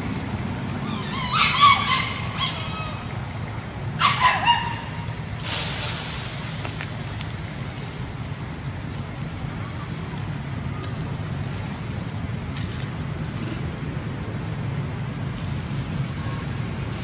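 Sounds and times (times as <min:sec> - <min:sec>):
dogs barking: 0:04.0 - 0:05.0
brief hissing rush: 0:05.4 - 0:06.8.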